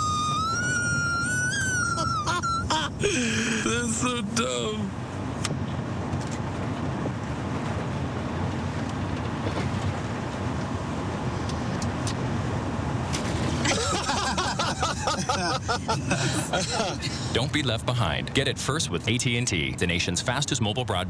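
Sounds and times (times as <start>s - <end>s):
car cabin road rumble: 0.0s - 21.0s
person speaking: 2.0s - 5.0s, 13.7s - 21.0s.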